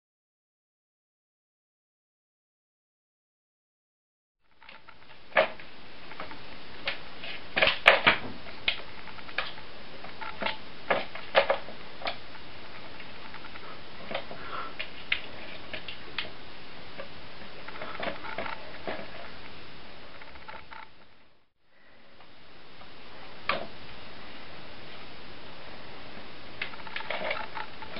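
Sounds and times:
steady hiss: 4.4s - 27.9s.

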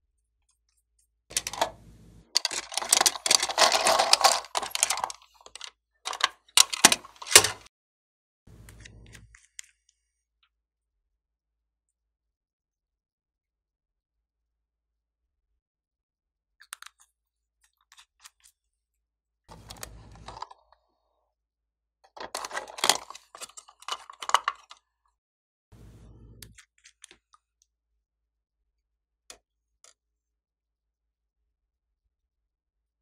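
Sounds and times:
plastic toy clattering: 1.3s - 1.8s, 2.4s - 7.7s, 19.5s - 20.6s, 22.1s - 24.8s.

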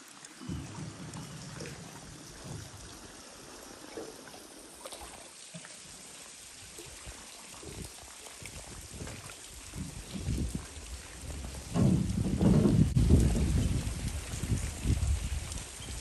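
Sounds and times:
water lapping against rocks: 0.0s - 16.0s.

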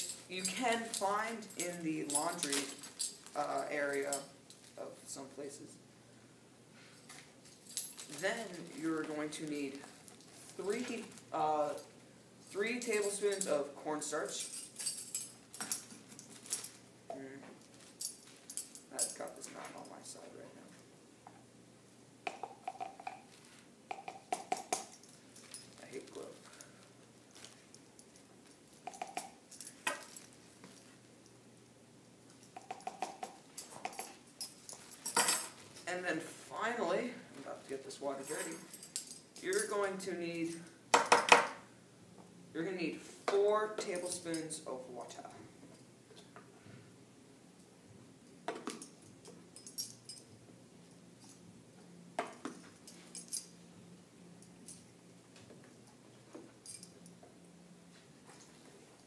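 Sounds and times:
faint room hum: 0.0s - 59.0s.

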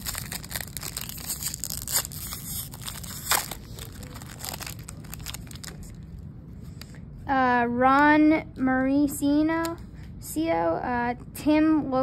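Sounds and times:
foil wrapper crinkling and tearing: 0.0s - 6.0s.

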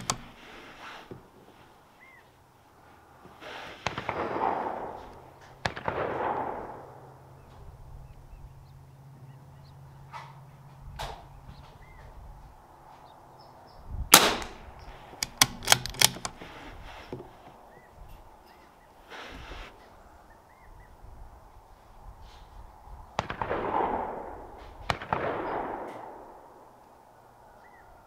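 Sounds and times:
sharp clicks: 0.0s - 0.5s, 14.1s - 16.6s
rifle shots with echo: 3.8s - 7.4s, 14.1s - 16.4s, 23.2s - 26.8s.

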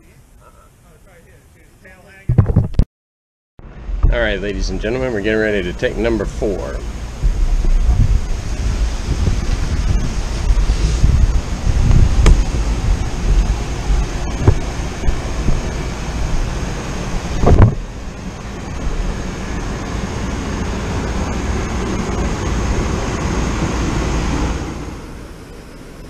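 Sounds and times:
loud thump: 2.3s - 2.9s, 10.9s - 12.6s, 14.4s - 15.7s, 17.3s - 17.9s
wind buffeting microphone: 3.7s - 26.0s.

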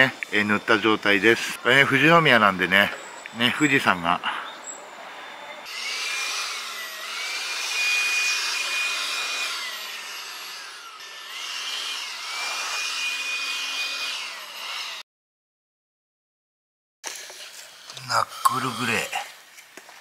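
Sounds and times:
cordless blower running: 5.7s - 15.0s.

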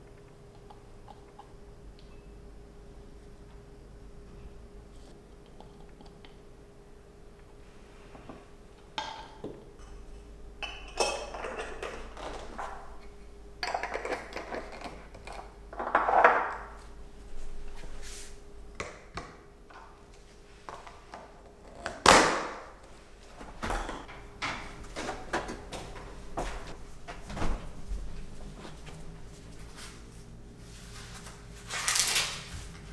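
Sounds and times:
faint steady hum: 0.0s - 32.9s.

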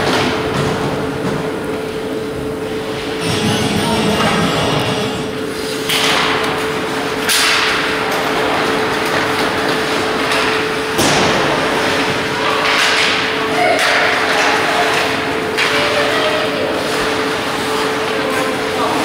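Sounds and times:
steady hum: 1.2s - 12.5s
puck and sticks hitting boards: 7.2s - 7.9s, 12.6s - 15.8s.

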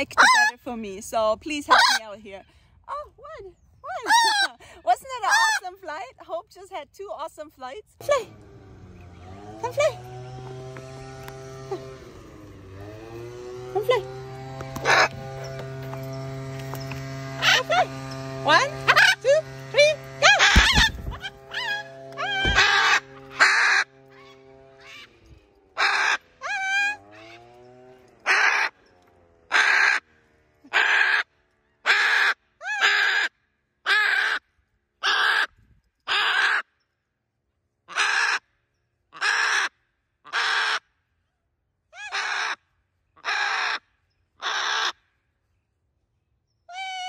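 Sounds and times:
bird cawing harshly: 14.8s - 15.2s, 20.2s - 25.2s, 25.8s - 27.6s, 28.2s - 28.8s, 29.5s - 30.0s, 39.2s - 39.7s, 40.3s - 40.8s, 43.2s - 43.8s, 44.4s - 45.0s.

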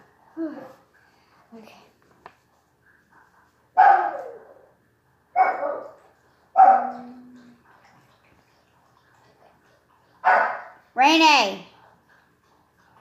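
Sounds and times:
dog barking: 3.8s - 4.4s, 5.4s - 6.0s, 6.6s - 7.1s, 10.2s - 10.8s.

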